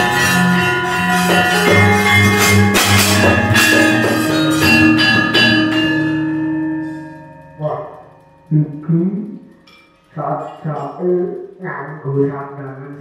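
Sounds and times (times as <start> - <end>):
gamelan metallophones and gongs: 0.0 - 10.1
sharp metallophone strikes: 0.0 - 11.6.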